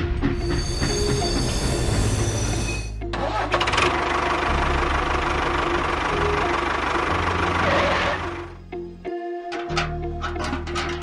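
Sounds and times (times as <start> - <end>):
background music: 0.0 - 11.0
steady engine-like noise: 3.2 - 8.6.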